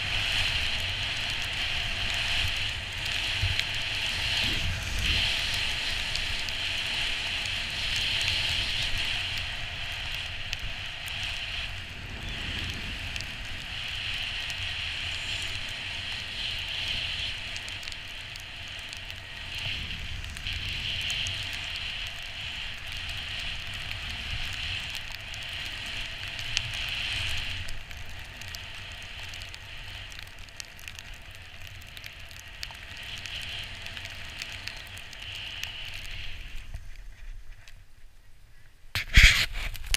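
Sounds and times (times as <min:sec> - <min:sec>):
skis sliding on snow: 0:00.0 - 0:30.1, 0:39.0 - 0:39.9
wind rumble on microphone: 0:00.0 - 0:39.9.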